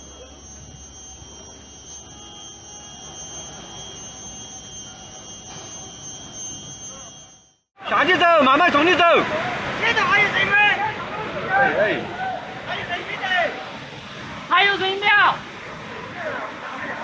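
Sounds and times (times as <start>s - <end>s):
high-pitched whine: 0.0s - 7.7s.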